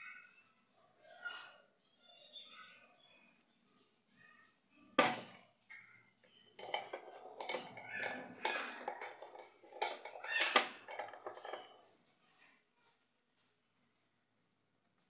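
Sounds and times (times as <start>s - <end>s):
kitchen utensils clattering: 6.4s - 11.8s.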